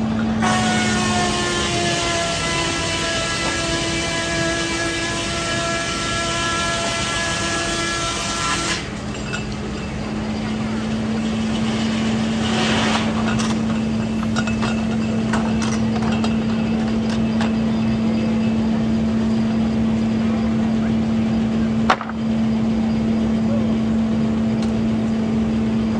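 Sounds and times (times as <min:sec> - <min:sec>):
sawing noise: 0:00.0 - 0:17.2
sawmill machinery whining: 0:00.0 - 0:25.9
knocks and clatter: 0:09.0 - 0:17.8, 0:21.8 - 0:22.2.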